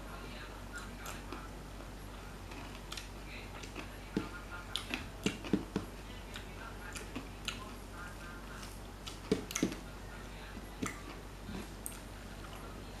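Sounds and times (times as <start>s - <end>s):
person chewing with lip smacks: 2.5s - 7.8s.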